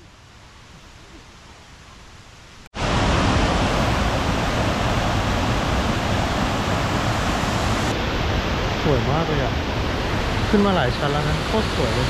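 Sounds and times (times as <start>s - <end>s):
waterfall rushing: 2.8s - 12.0s.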